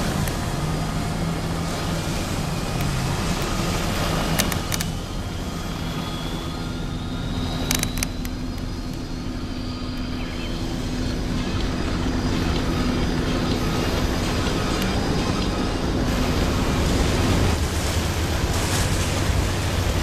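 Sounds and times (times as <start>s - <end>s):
wind and water rushing: 0.0s - 20.0s
brief clicks: 7.6s - 9.0s.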